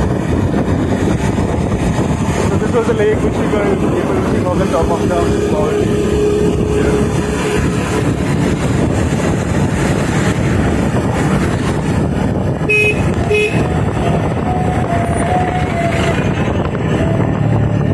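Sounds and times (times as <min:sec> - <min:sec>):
vehicle engine and road noise: 0:00.0 - 0:17.9
vehicle horn toots: 0:12.6 - 0:16.2.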